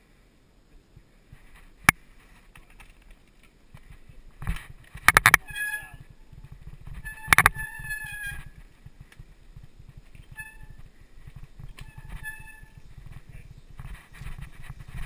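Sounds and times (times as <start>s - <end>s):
mountain bike rattling over dirt: 1.3s - 15.0s
high squeal: 5.4s - 6.0s, 7.0s - 8.6s, 11.8s - 12.8s.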